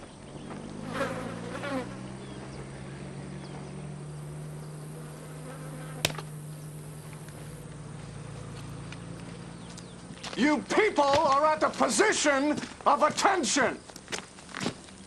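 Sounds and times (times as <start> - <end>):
low buzzing hum: 0.0 - 10.3
sharp click: 6.0 - 6.3.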